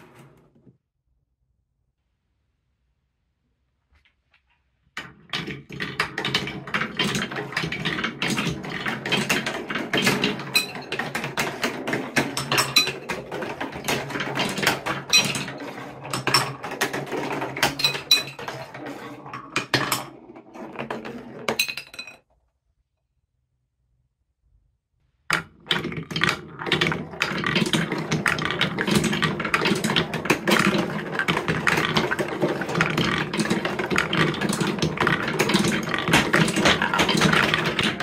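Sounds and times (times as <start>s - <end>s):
marbles rolling down track: 5.0s - 22.2s, 25.3s - 38.0s.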